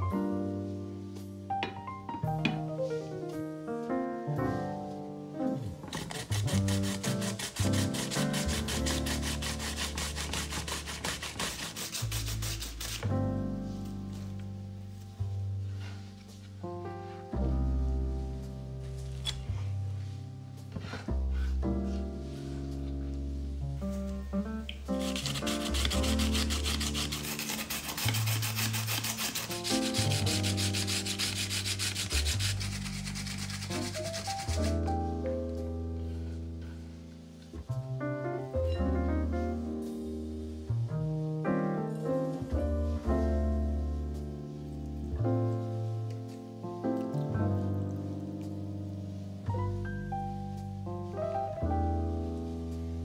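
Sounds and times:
background music: 0:00.0 - 0:53.0
zucchini scraping on grater: 0:05.9 - 0:13.0, 0:25.0 - 0:34.8.

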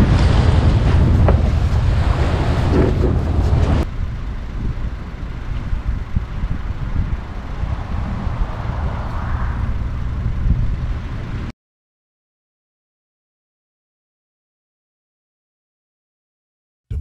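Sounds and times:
wind buffeting microphone: 0:00.0 - 0:11.5.

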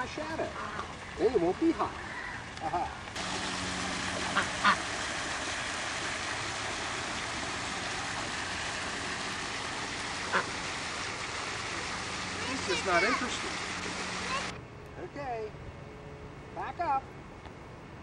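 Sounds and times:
steady hiss: 0:00.0 - 0:15.2
ducks quacking: 0:00.4 - 0:05.4, 0:09.7 - 0:14.6.

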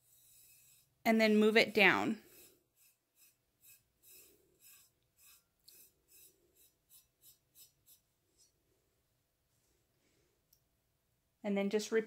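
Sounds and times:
fingertips rubbing paint paste: 0:00.0 - 0:08.2.

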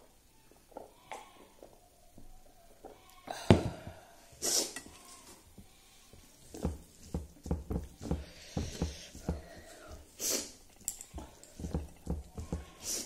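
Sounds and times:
short hissing breath: 0:08.3 - 0:10.6.

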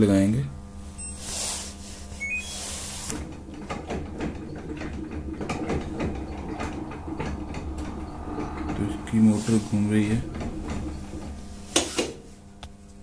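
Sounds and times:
washing machine motor hum: 0:00.0 - 0:13.0
button beep: 0:02.2 - 0:02.7
irregular clicks and knocks: 0:03.1 - 0:08.8.

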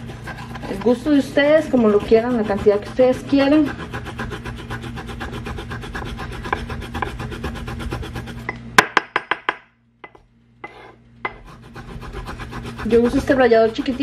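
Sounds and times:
ginger rasped on metal grater: 0:00.0 - 0:08.5, 0:10.7 - 0:14.0
grater knocking on wooden board: 0:05.2 - 0:08.1.

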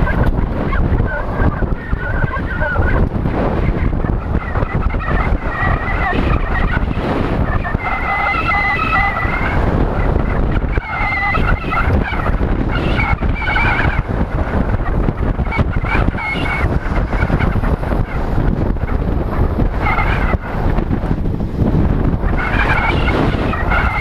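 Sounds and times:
wind buffeting camera: 0:00.0 - 0:24.0
wavering high-pitched tones: 0:03.6 - 0:14.1, 0:14.8 - 0:18.2.

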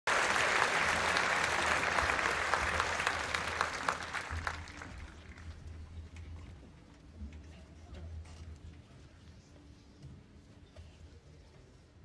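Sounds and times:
audience applauding: 0:00.1 - 0:05.6.

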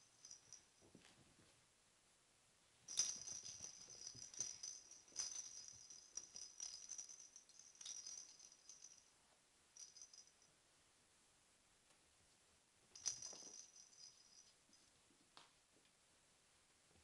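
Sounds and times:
bell in toy ball jingling: 0:00.0 - 0:00.9, 0:02.9 - 0:09.1, 0:09.8 - 0:10.5, 0:13.0 - 0:14.9.

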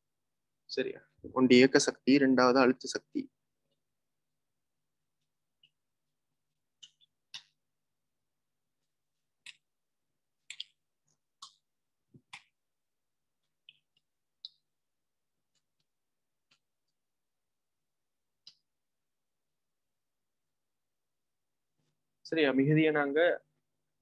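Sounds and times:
short irregular clicks and taps: 0:06.7 - 0:07.6, 0:10.4 - 0:12.6.

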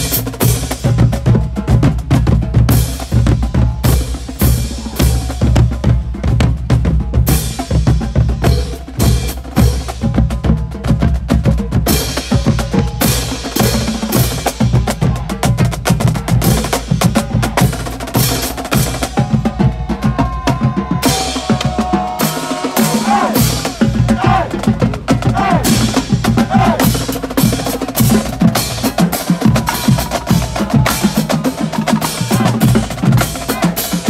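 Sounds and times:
marching drumline cadence: 0:00.0 - 0:34.0
brass horns: 0:21.0 - 0:34.0.

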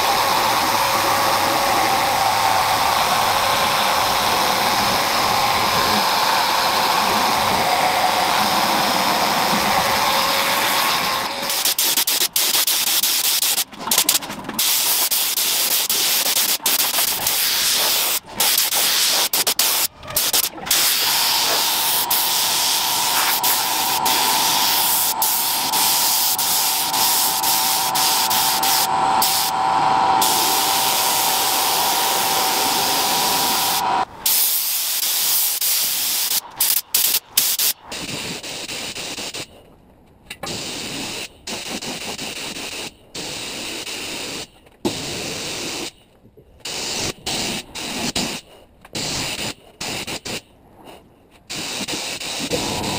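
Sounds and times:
spray gun hissing: 0:00.0 - 0:39.5, 0:46.7 - 0:48.4, 0:51.5 - 0:52.9
steady whistle: 0:17.3 - 0:34.1.

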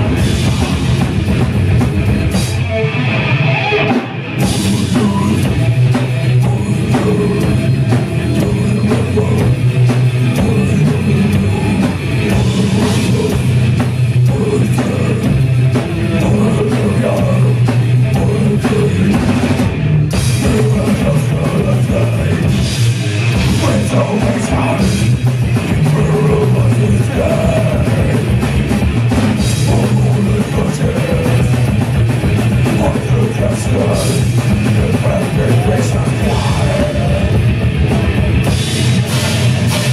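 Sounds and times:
fast drumming on drum kit: 0:00.0 - 0:02.7, 0:03.9 - 0:39.9
live heavy metal band: 0:00.0 - 0:39.9.

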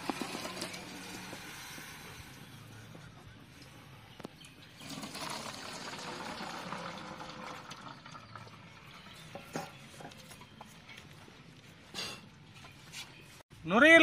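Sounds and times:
water pouring into a colander: 0:04.8 - 0:09.0.

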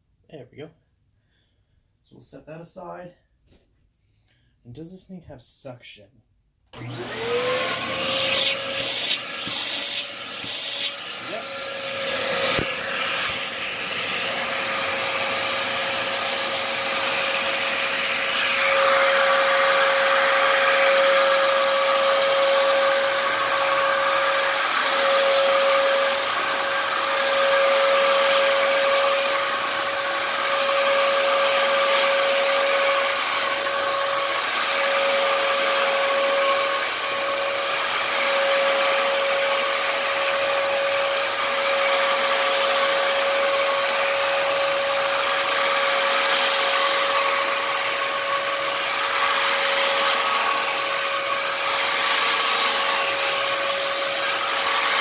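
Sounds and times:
vacuum cleaner motor whine: 0:06.8 - 0:55.0.

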